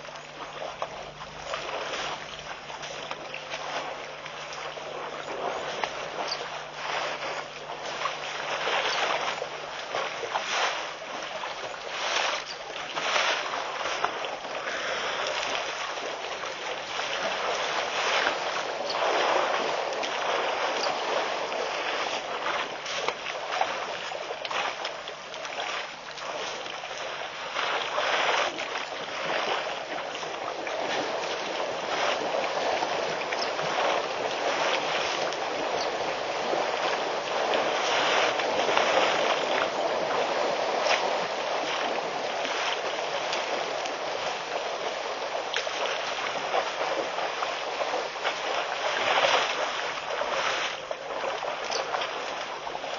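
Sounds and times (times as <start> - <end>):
elephants splashing in water: 0.0 - 52.9.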